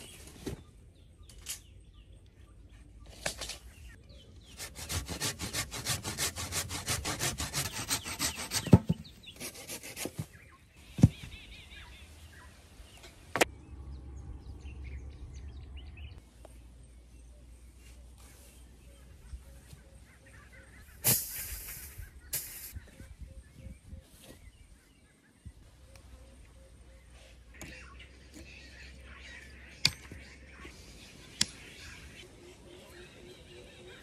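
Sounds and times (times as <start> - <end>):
rasping strokes on wooden pole: 4.4 - 10.2.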